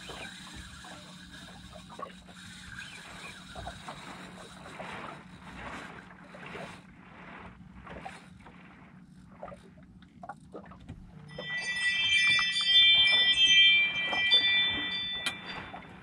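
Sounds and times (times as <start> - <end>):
chime-like ringing tones: 11.2 - 16.0.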